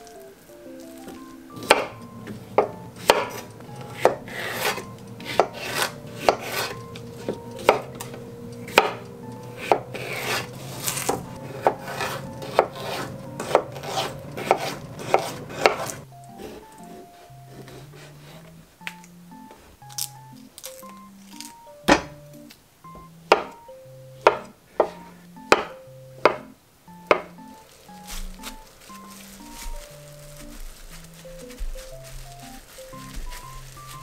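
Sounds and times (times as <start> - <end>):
knife blade scraping: 3.1 - 7.0, 9.6 - 16.0.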